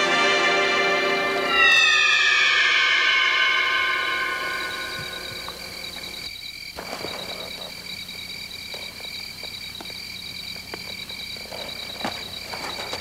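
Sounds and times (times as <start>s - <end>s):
crickets and frogs trilling: 0.0s - 13.0s.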